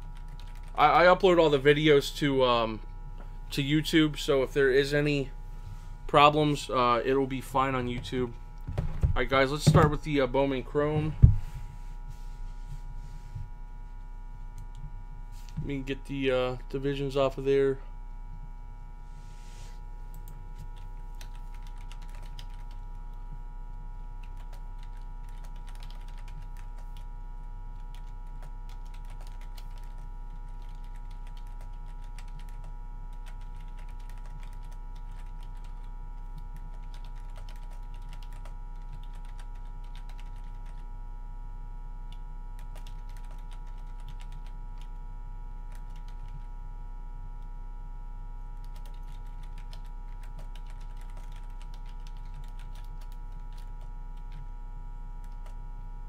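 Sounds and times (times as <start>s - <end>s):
steady low hum: 0.0s - 56.0s
computer keyboard typing: 0.1s - 1.0s, 20.8s - 22.9s, 24.2s - 27.0s, 27.8s - 35.9s, 36.6s - 40.8s, 42.6s - 44.9s, 45.7s - 46.5s, 48.6s - 54.4s, 55.2s - 55.6s.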